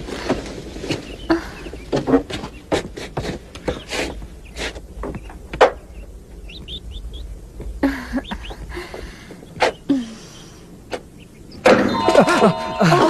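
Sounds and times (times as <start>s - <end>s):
sharp knocks and thumps: 0.2s - 6.8s.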